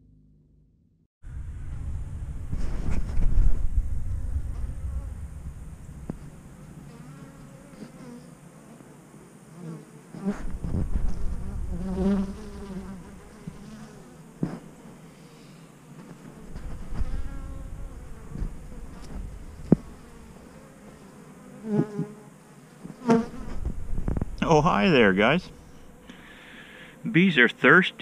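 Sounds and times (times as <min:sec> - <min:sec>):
low rumble: 0:00.0 - 0:07.5
honeybees buzzing: 0:04.4 - 0:28.0.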